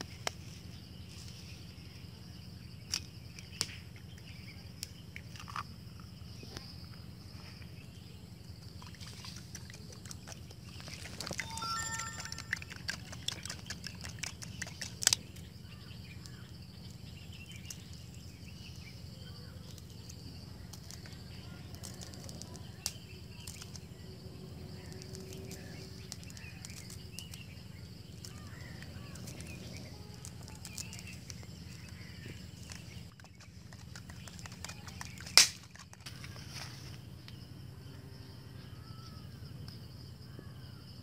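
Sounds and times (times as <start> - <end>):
fork beating eggs in foil bowl: 9.7 - 15.1, 31.9 - 36.1.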